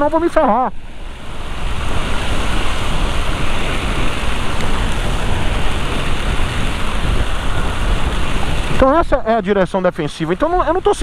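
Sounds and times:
wind on microphone: 0.0s - 11.0s
heavy rain: 0.8s - 9.6s.

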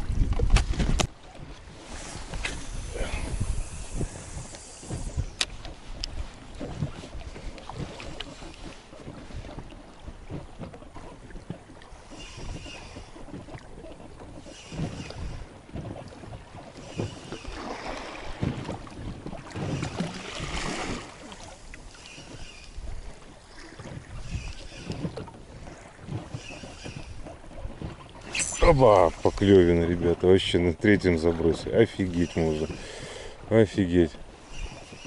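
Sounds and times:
water lapping: 0.0s - 35.0s
wind buffeting microphone: 0.0s - 35.0s.

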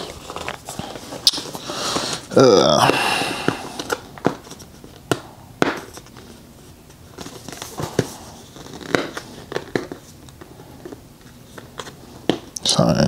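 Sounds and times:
crackling tape rustles: 0.0s - 2.4s, 3.5s - 13.0s
package clicks and knocks: 3.4s - 6.2s.

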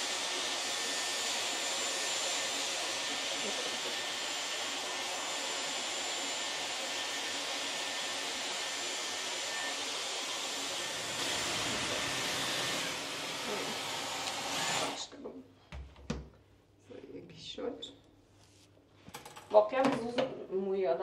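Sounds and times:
hair dryer blowing with whine: 0.0s - 15.0s.

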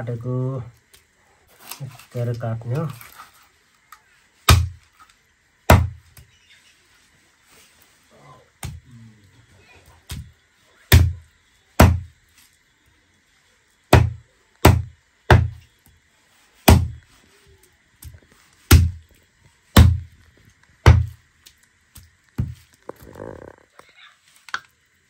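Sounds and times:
knife chopping on wooden block: 4.5s - 4.8s, 5.7s - 6.0s, 11.8s - 12.1s, 13.9s - 15.6s, 16.7s - 17.0s, 18.7s - 19.0s, 19.8s - 20.0s, 20.8s - 21.1s.

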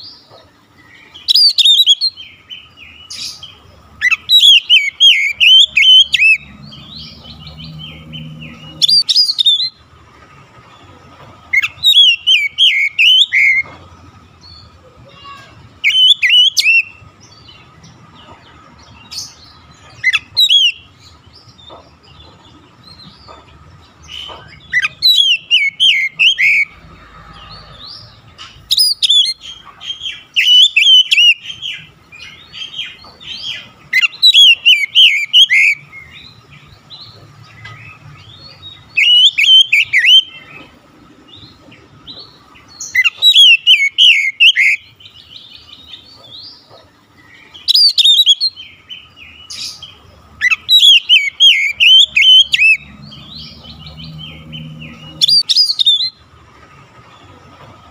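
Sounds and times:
bird singing whistles and chirps: 1.1s - 9.8s, 11.5s - 13.7s, 15.2s - 17.5s, 19.2s - 21.0s, 24.1s - 26.8s, 28.6s - 36.4s, 38.3s - 40.6s, 42.8s - 46.3s, 47.6s - 56.2s.

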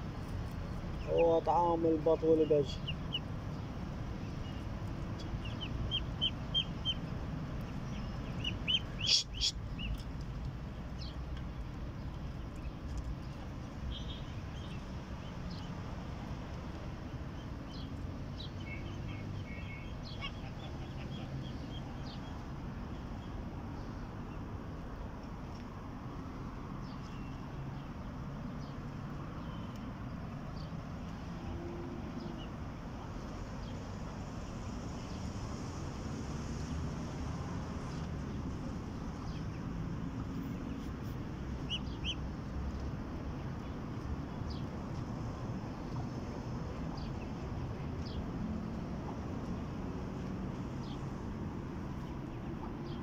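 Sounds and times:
ducklings peeping: 4.5s - 10.0s, 41.6s - 42.2s
chicks peeping: 7.6s - 10.0s.

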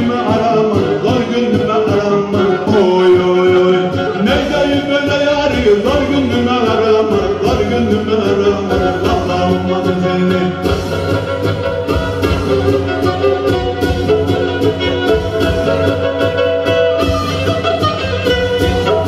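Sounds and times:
bowed fiddle: 0.0s - 7.3s, 8.6s - 19.0s
man singing into a microphone: 0.0s - 11.4s
steady beat: 0.0s - 19.0s.

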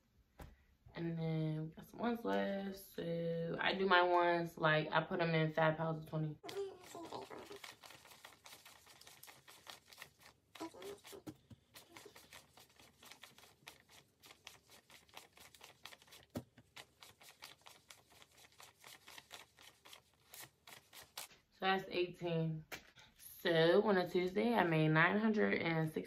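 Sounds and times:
paper bills being counted: 6.5s - 21.3s.

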